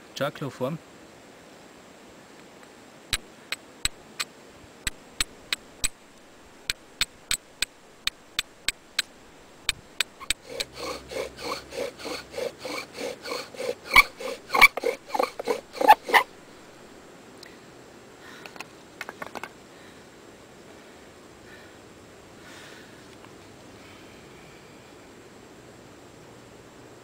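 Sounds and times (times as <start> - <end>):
steel striker scraping flint: 9.9 - 16.3
bow drill squeaking strokes: 10.0 - 16.3.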